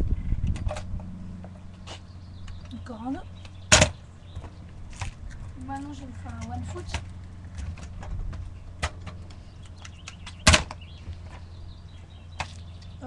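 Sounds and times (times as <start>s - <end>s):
scooter clattering on brick paving: 0.5s - 13.0s
scooter landing clack: 9.9s - 11.4s.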